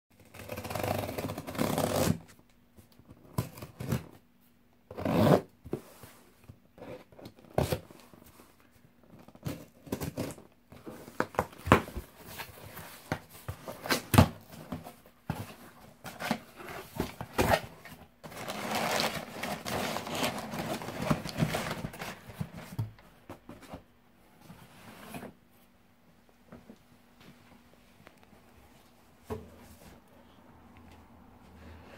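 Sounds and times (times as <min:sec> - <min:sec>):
contents rustling: 0:05.7 - 0:23.9.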